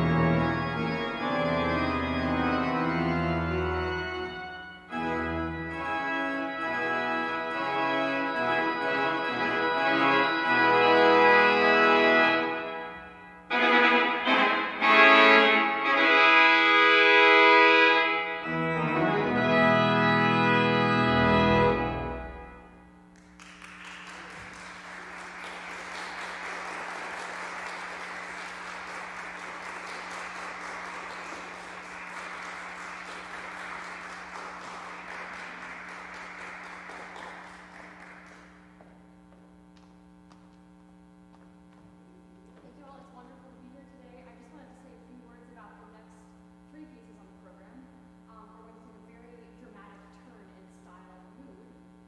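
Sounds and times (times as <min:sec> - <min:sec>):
pipe organ chords: 0:00.0 - 0:44.7
audience applause: 0:23.2 - 0:38.8.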